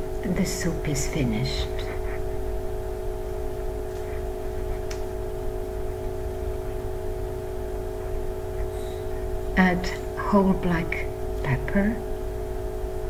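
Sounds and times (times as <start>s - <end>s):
low hum with held tones: 0.0s - 13.0s.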